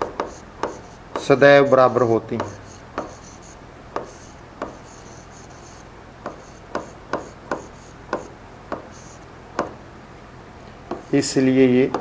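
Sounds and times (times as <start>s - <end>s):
pen scraping strokes: 0.0s - 1.0s, 2.4s - 9.2s
pen tapping on glass: 0.0s - 1.3s, 2.4s - 3.3s, 4.0s - 4.9s, 6.2s - 9.0s, 10.9s - 11.1s.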